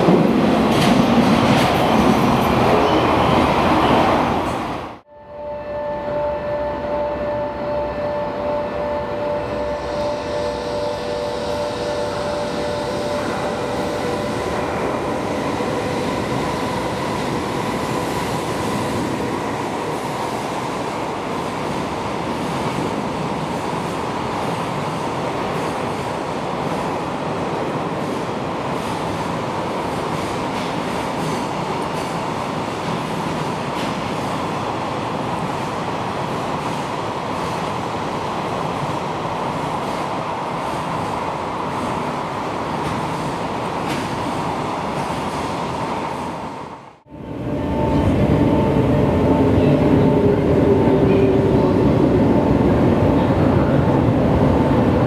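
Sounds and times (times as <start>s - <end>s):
locomotive tones: 47.1s - 55.0s.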